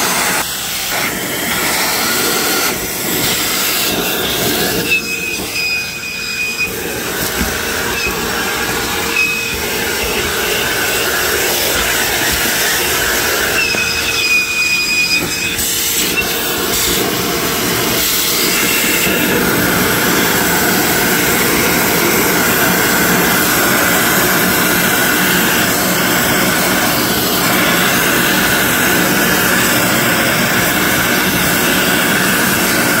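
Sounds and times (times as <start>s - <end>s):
vacuum cleaner running: 0.0s - 33.0s
high whistle: 3.6s - 17.1s.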